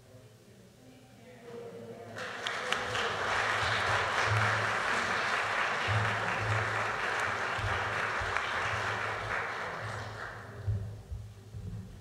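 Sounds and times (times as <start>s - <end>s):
crowd applauding: 2.2s - 10.8s.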